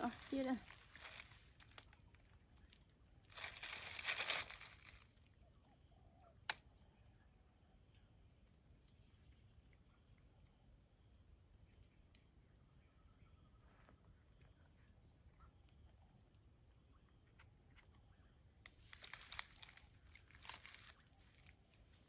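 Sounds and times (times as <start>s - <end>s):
plastic bag crinkling: 0.0s - 1.8s, 3.3s - 5.0s
faint high insect trill: 0.0s - 22.0s.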